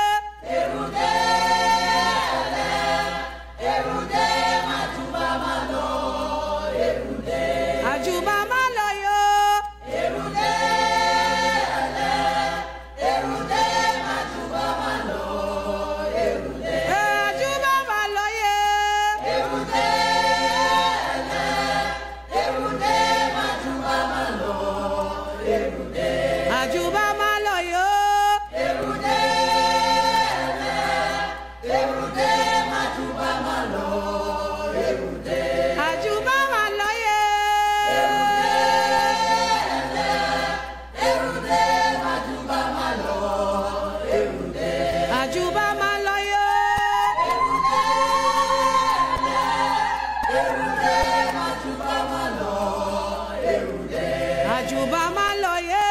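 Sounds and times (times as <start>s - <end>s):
choir singing unaccompanied: 0.0s - 55.9s.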